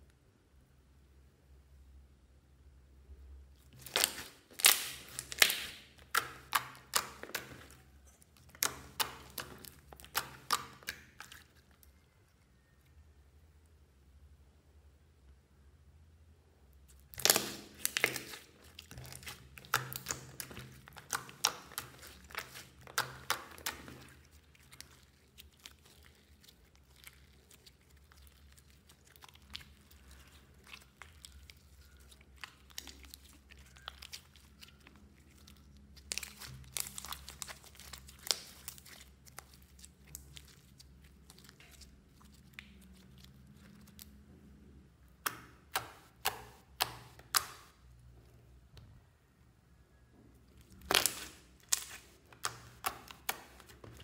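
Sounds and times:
slime squishing: 0:03.4 - 0:12.9, 0:16.8 - 0:49.4, 0:50.0 - 0:54.0
slime crackling and popping: 0:03.7 - 0:12.0, 0:16.9 - 0:44.2, 0:45.1 - 0:47.8, 0:50.5 - 0:54.0.

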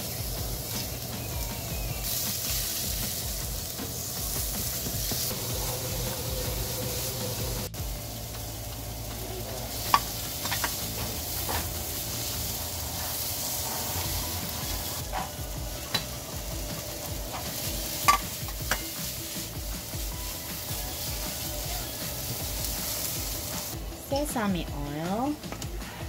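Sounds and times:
food sizzling in a pan: 0:00.0 - 0:26.0
utensil clicking against pan: 0:09.0 - 0:11.8.

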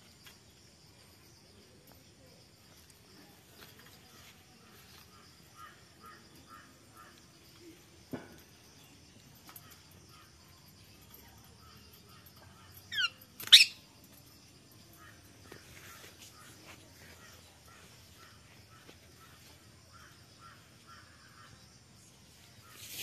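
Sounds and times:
soft chirps: 0:00.0 - 0:23.0.

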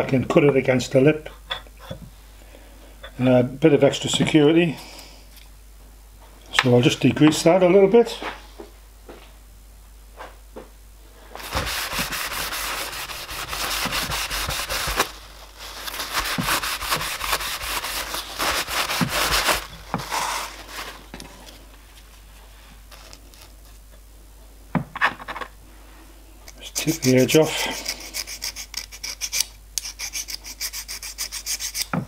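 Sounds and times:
cloth rubbing on steel plate: 0:11.4 - 0:21.0.

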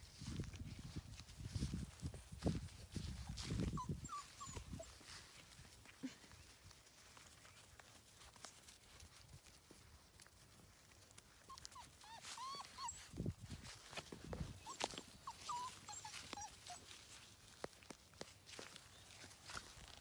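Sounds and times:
rustling in grass: 0:00.0 - 0:20.0
puppies whimpering: 0:03.2 - 0:05.1, 0:11.5 - 0:13.3, 0:14.5 - 0:17.2.

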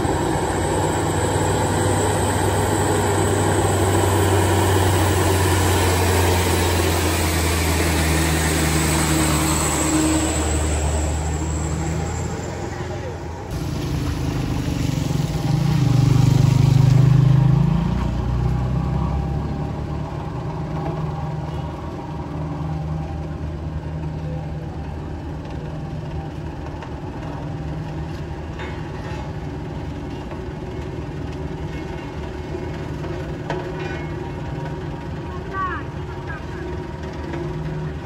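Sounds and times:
motorcycle passing: 0:00.0 - 0:21.4
road roller diesel engine: 0:00.0 - 0:38.0.

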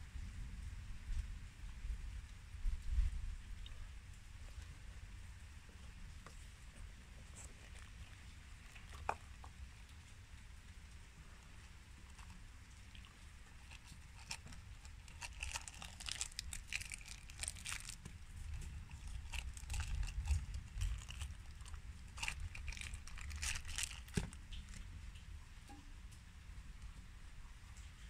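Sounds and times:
faint low rumble: 0:00.0 - 0:28.0
packaging crinkling and rustling: 0:07.2 - 0:09.6, 0:11.4 - 0:24.8.

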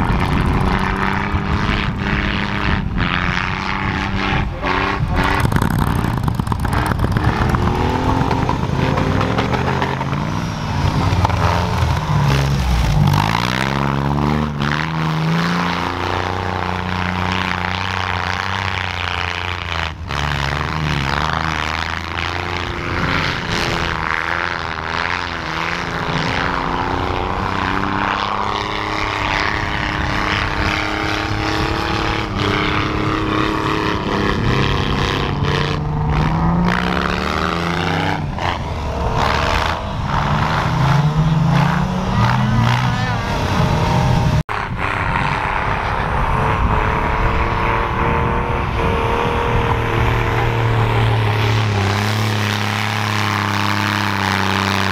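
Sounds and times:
car engine revving hard: 0:00.0 - 0:54.9.

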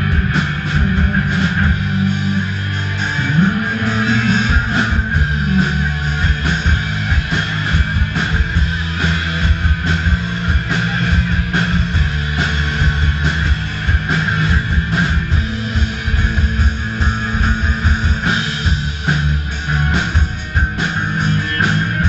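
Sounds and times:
rock band playing live: 0:00.0 - 0:22.0.

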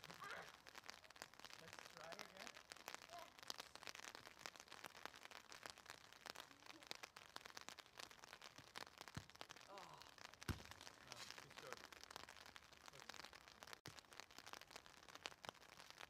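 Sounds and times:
light rain crackle: 0:00.0 - 0:16.0
soccer ball kicked hard: 0:10.5 - 0:10.8.

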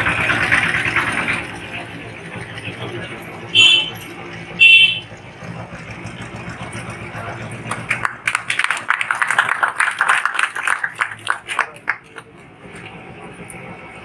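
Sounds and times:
people clapping: 0:07.3 - 0:12.9
murmur of voices: 0:09.9 - 0:14.0.

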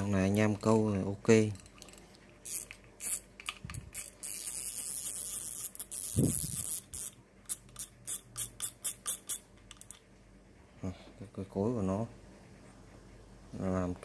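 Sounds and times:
fishing reel whirring: 0:02.4 - 0:03.2, 0:03.9 - 0:07.2
fishing reel clicks: 0:02.4 - 0:10.0.

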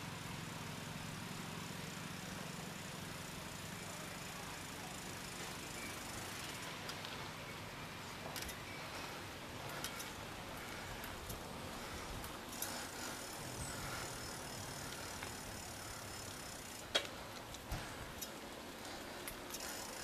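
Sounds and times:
bicycle rolling on pavement: 0:00.2 - 0:20.0
bike rattles and clicks: 0:04.2 - 0:20.0.

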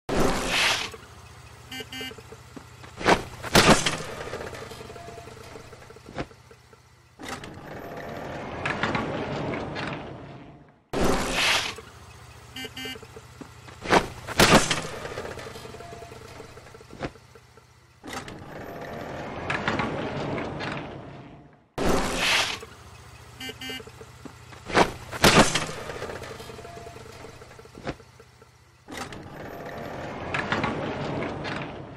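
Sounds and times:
cartoon horn beeps: 0:01.7 - 0:02.4, 0:12.5 - 0:13.2, 0:23.4 - 0:24.1.

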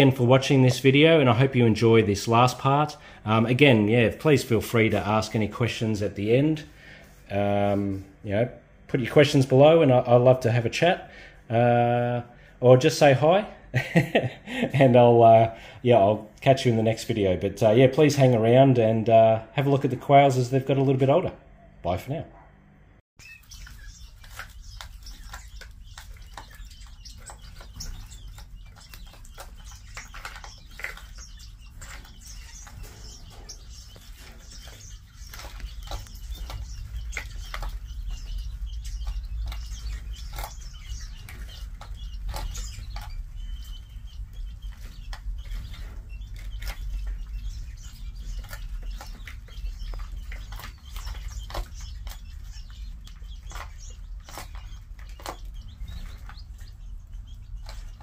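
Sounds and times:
birds pecking in plastic bowls: 0:00.0 - 0:21.3, 0:23.2 - 0:58.0
soft chick chirps: 0:23.2 - 0:58.0.

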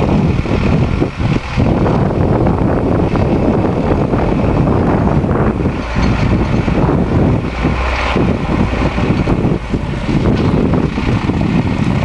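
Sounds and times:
diesel tractors running under load: 0:00.0 - 0:12.0
wind buffeting microphone: 0:00.0 - 0:12.0.

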